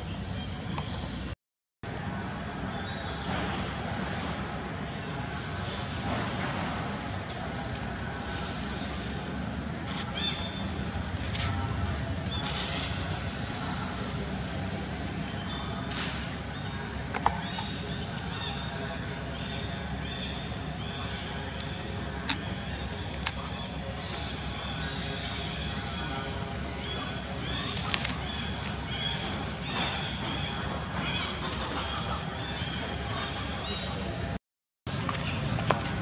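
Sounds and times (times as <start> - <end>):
high-pitched insect drone: 1.9 - 34.4
sharp clicks: 22.2 - 22.5.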